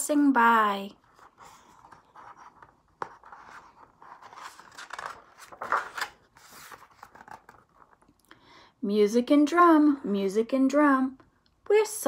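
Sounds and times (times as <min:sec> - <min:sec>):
paper pages rustling: 0:01.0 - 0:08.1.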